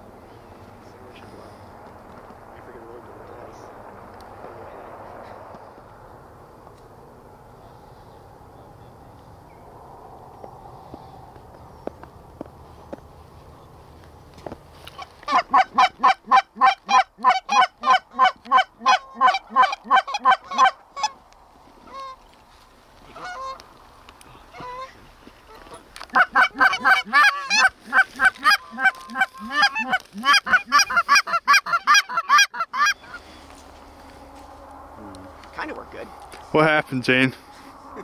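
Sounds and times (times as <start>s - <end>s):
faint goose honks: 15.0s - 21.2s, 21.8s - 22.2s, 23.0s - 23.6s, 24.4s - 33.3s
goose call honks: 15.0s - 21.2s, 23.1s - 23.6s, 24.5s - 33.2s.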